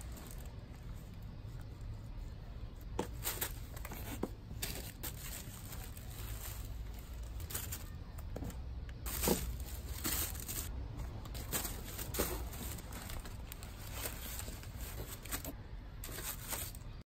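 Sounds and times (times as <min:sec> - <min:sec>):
low steady hum: 0:00.0 - 0:17.0
tissue paper rustling: 0:03.0 - 0:08.0, 0:09.0 - 0:17.0.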